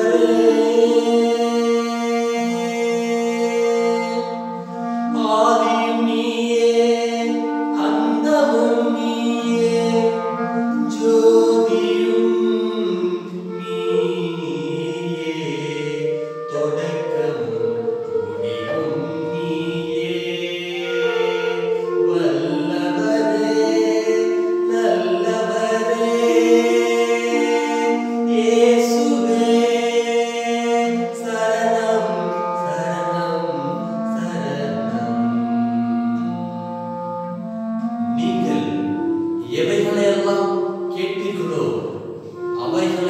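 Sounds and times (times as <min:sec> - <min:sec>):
person singing: 0:00.0 - 0:37.0, 0:38.0 - 0:43.0
clarinet playing slow melody: 0:00.0 - 0:43.0.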